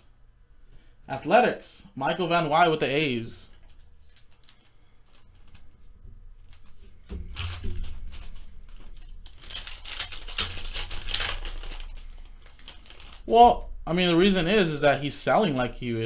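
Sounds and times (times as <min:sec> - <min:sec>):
foil wrapper crinkling and tearing: 0:03.6 - 0:05.8, 0:06.4 - 0:13.7.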